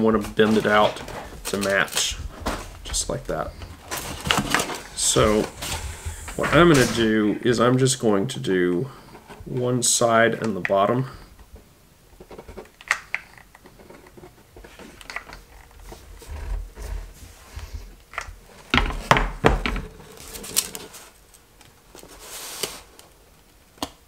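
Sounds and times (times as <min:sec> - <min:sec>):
foam board scraping: 0:00.5 - 0:07.6.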